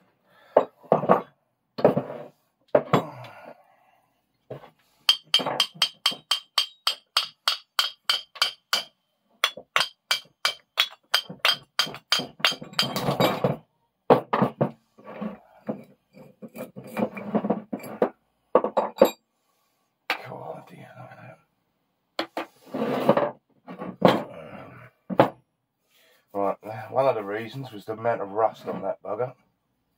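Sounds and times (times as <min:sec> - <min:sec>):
hammer tapping metal vice: 0:05.1 - 0:13.2.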